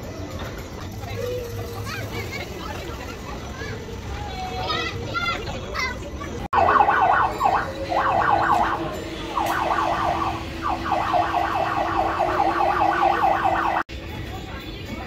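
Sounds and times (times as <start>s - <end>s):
electronic yelp siren: 6.5s - 13.9s.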